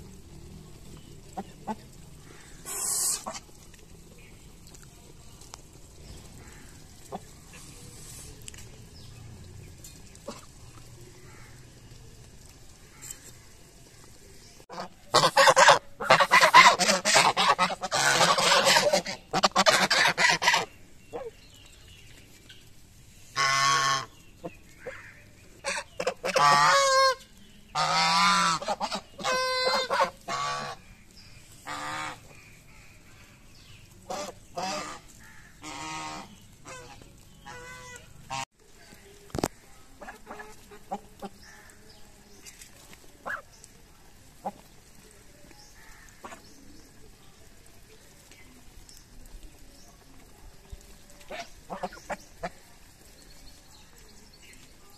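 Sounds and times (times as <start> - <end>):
geese honking: 1.3 - 3.6, 14.7 - 21.3, 23.3 - 31.0, 31.6 - 32.8, 34.0 - 38.5, 51.3 - 52.7.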